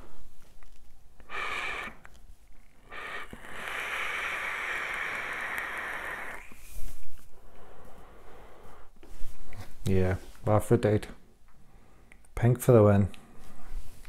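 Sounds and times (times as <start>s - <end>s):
airy hiss of inhaling: 1.2s - 2.1s, 2.8s - 9.2s
vapour exhaled gust: 1.2s - 2.1s, 2.8s - 8.9s.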